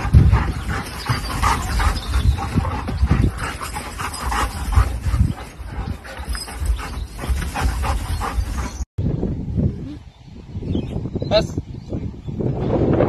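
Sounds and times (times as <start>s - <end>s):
dogs yipping and whining: 0.1s - 8.8s.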